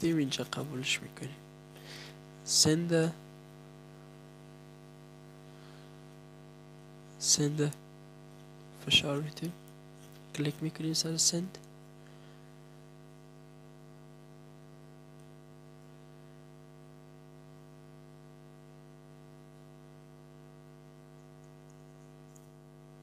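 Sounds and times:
faint electrical hum: 0.0s - 23.0s.

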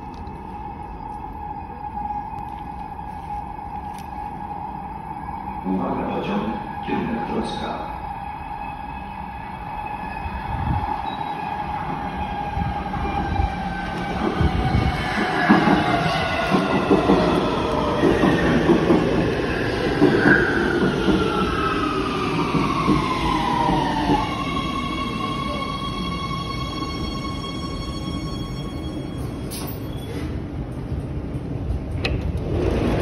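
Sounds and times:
wheels rumbling on rails: 28.0s - 33.0s.

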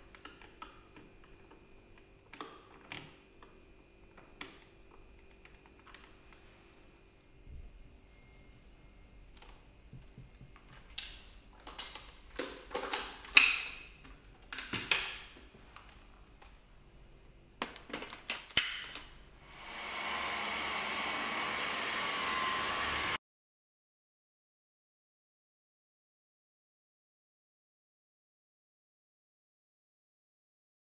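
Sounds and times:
plastic clicks and clacks: 10.3s - 15.2s
vacuum cleaner motor whining: 19.4s - 23.2s.

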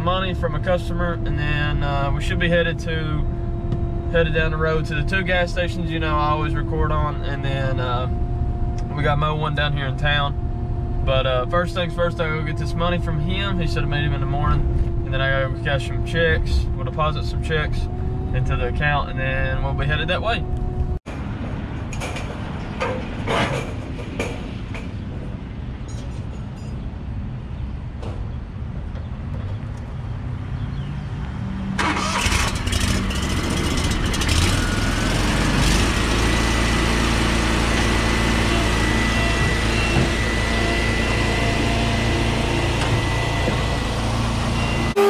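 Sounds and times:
mower engine starting and running: 31.8s - 45.0s.

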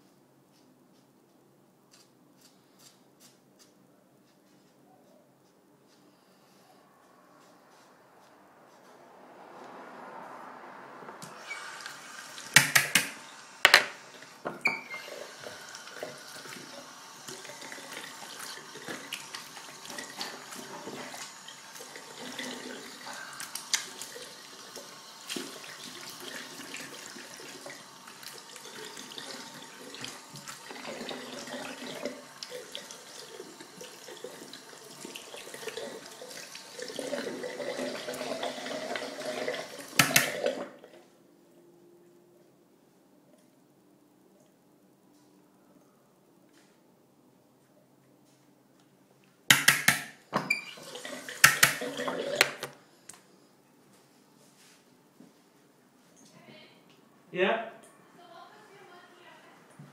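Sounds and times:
tap water running into sink: 11.3s - 40.8s, 49.5s - 52.8s.

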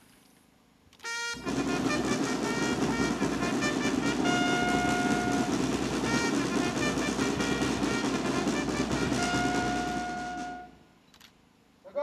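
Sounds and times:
brass band playing: 1.0s - 10.8s
drums: 1.4s - 10.8s.

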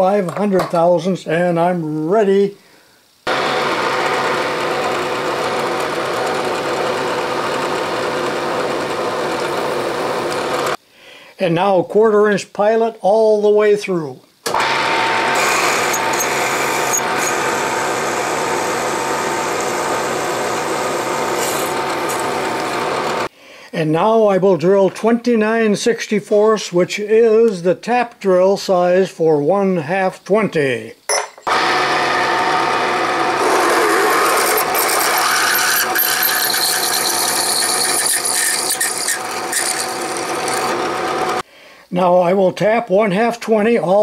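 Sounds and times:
milling machine drilling metal: 3.3s - 10.8s, 14.5s - 23.3s, 31.5s - 41.4s.

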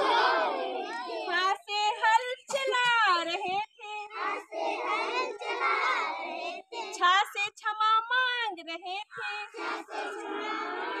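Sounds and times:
children singing together: 0.0s - 1.1s, 4.0s - 6.9s, 9.2s - 11.0s.

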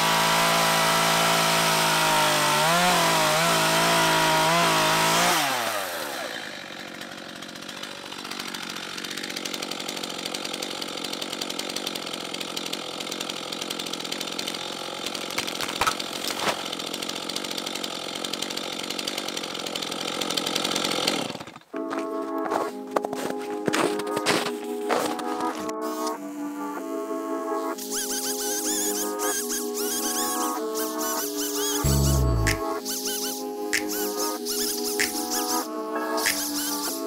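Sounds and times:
chainsaw idling: 0.2s - 21.9s, 27.8s - 32.7s
sharp cracks: 33.7s - 35.4s.

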